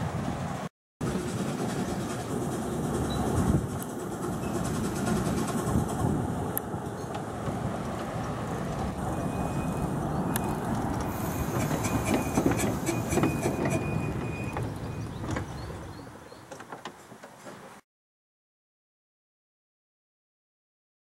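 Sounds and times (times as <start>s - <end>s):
train wheels rumbling on track: 0.0s - 17.8s
clicking over rail joints: 3.6s - 17.8s.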